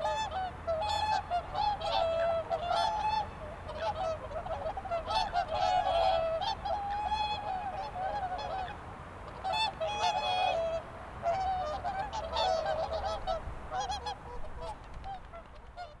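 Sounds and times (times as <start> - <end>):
swans honking: 0.0 - 16.0.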